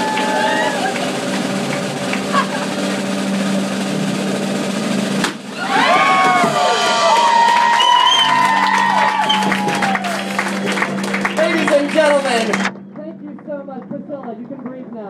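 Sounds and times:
audience cheering and whooping: 0:00.0 - 0:03.1, 0:05.5 - 0:12.6
drum roll: 0:00.0 - 0:15.0.

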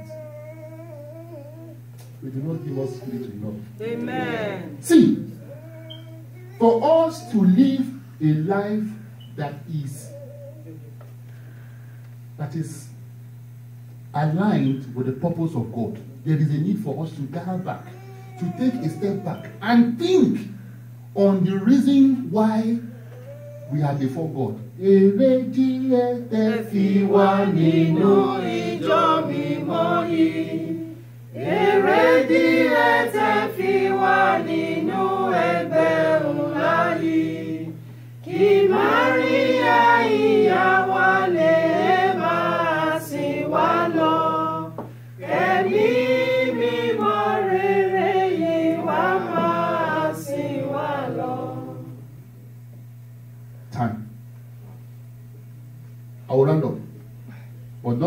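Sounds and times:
steady low hum: 0:00.0 - 0:58.0
church chorus singing unaccompanied: 0:24.8 - 0:52.2.

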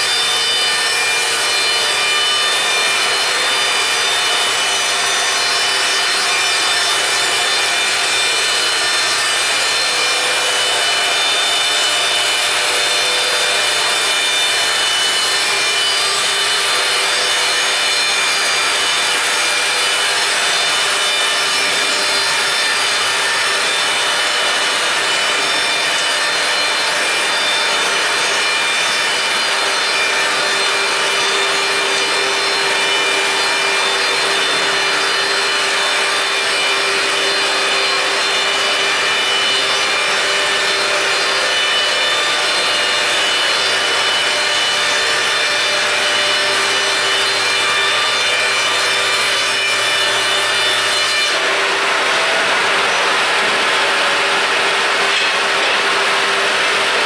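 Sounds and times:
band saw blade rasping wood: 0:00.0 - 0:56.9.

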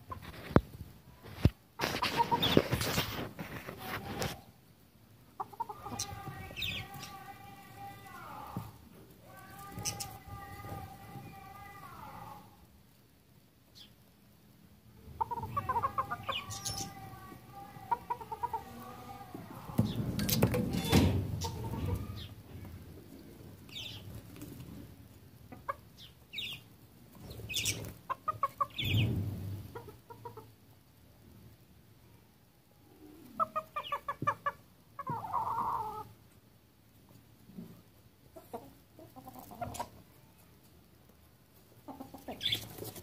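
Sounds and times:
rustling: 0:00.0 - 0:04.6, 0:39.3 - 0:43.0
roosters clucking: 0:00.0 - 0:12.5, 0:14.8 - 0:30.8, 0:32.9 - 0:43.0.

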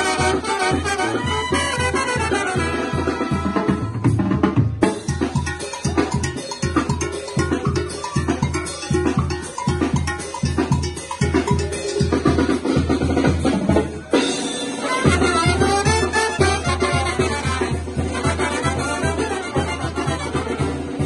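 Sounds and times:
brass: 0:00.0 - 0:04.5, 0:13.4 - 0:21.0
banda drums: 0:00.0 - 0:21.0.

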